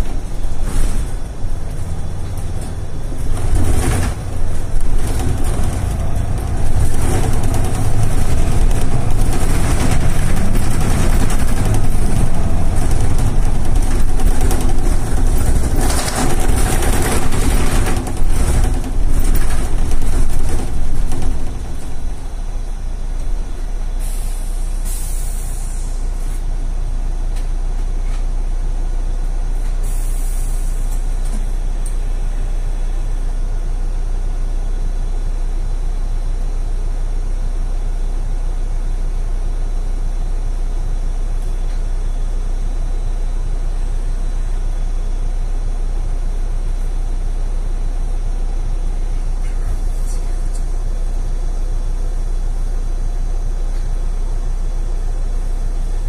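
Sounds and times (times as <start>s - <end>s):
bus engine idling: 0.0s - 56.0s
compressed air hisses: 24.0s - 26.0s, 29.8s - 30.8s.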